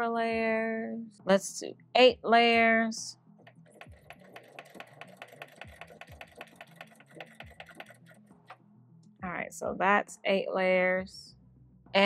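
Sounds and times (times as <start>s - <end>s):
sewing machine ticking: 3.7s - 8.2s.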